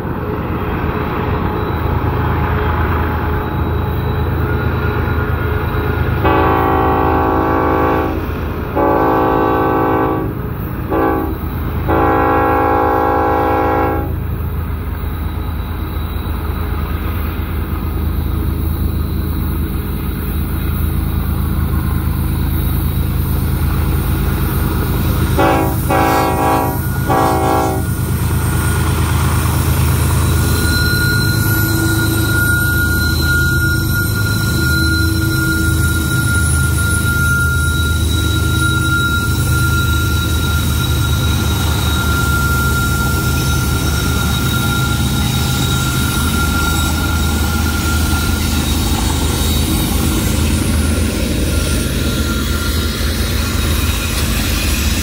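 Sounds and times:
diesel locomotives droning: 0:00.0 - 0:55.0
train horn blasts: 0:06.2 - 0:14.3, 0:25.2 - 0:28.1.

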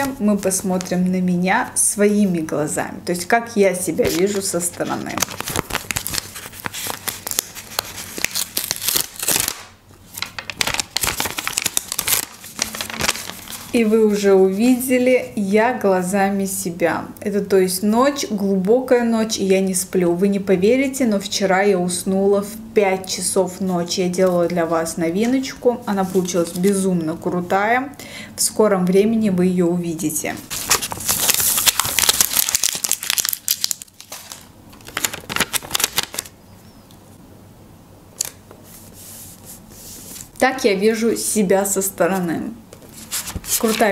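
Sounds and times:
stiff paper rustling and crinkling: 0:04.0 - 0:14.2, 0:30.5 - 0:36.3, 0:42.8 - 0:43.9.

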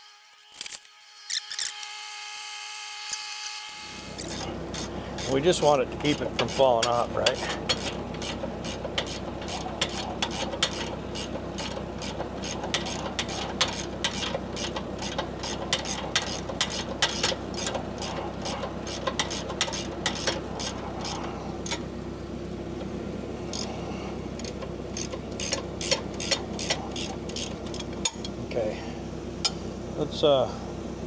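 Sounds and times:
steady low hum: 0:03.7 - 0:31.0
hand ratchet clicking: 0:06.5 - 0:21.8, 0:24.4 - 0:28.3.

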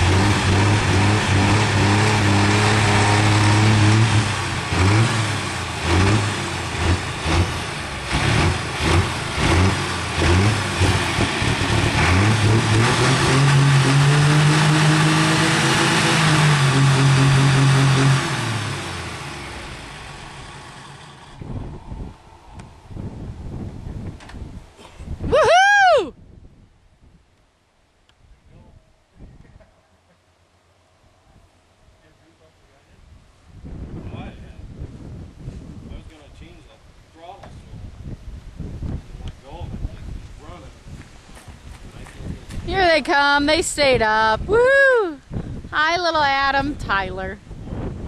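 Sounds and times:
diesel tractor engine revving: 0:00.0 - 0:24.2.

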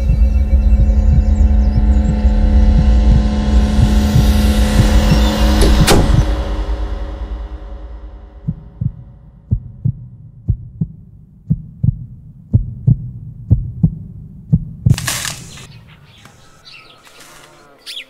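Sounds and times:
heartbeat thumps: 0:00.0 - 0:06.4, 0:08.2 - 0:15.0
faint bird chirps: 0:15.5 - 0:18.0.

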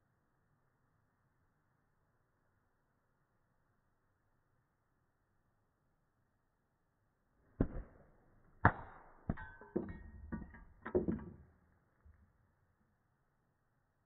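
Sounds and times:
stone hitting bottle: 0:08.6 - 0:11.5
glassy clinks and knocks on wood: 0:09.3 - 0:11.4.

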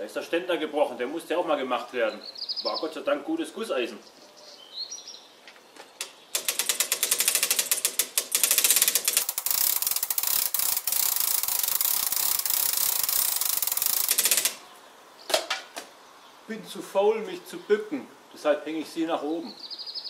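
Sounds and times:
chain hoist ratchet clicking: 0:06.4 - 0:14.6.

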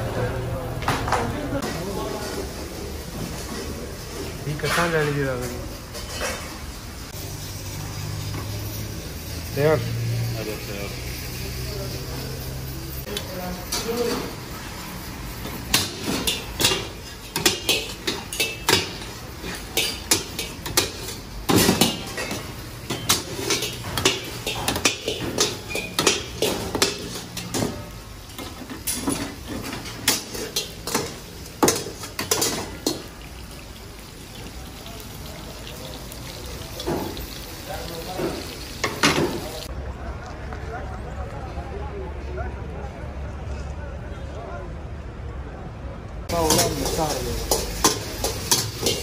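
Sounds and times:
steady background noise: 0:00.0 - 0:49.0
metal utensils clanking on pots: 0:03.2 - 0:06.8, 0:13.0 - 0:14.6, 0:15.3 - 0:34.8, 0:35.6 - 0:39.7, 0:46.3 - 0:49.0.

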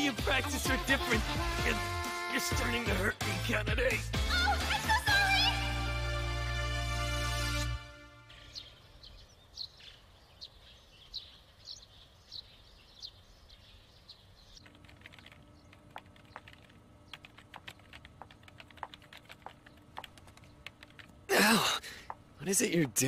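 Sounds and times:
small birds chirping: 0:08.3 - 0:21.3
faint steady hum: 0:08.7 - 0:23.0
typing on computer keyboard: 0:14.6 - 0:21.2.

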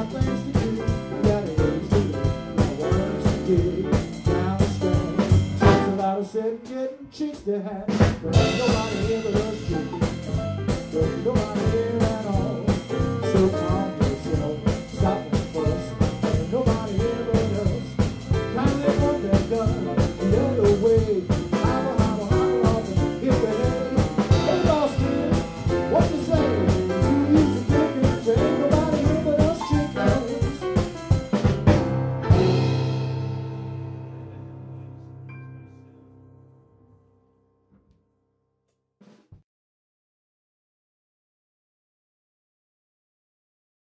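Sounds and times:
drum kit beat: 0:00.0 - 0:34.4
piano: 0:00.0 - 0:37.8
bass: 0:00.0 - 0:38.0
melodic lead line: 0:05.4 - 0:06.2, 0:08.4 - 0:34.3.

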